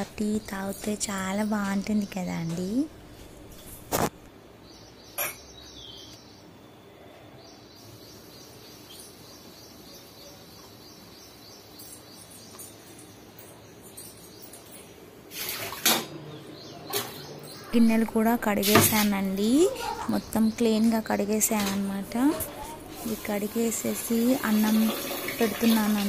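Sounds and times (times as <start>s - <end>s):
household background hum: 0.0s - 10.8s, 11.8s - 26.0s
water running in sink: 22.9s - 26.0s.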